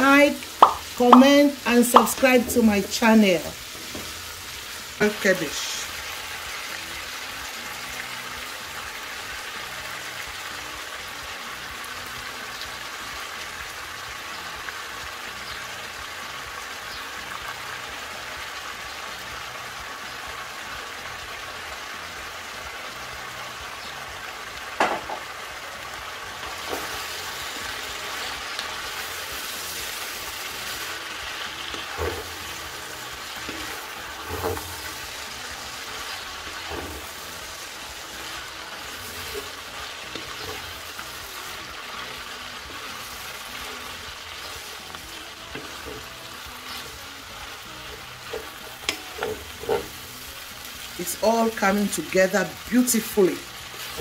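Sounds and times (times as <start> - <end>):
vegetables sizzling in a frying pan: 0.0 - 54.0
wooden spatula knocking on pan: 0.6 - 1.3, 24.8 - 25.2.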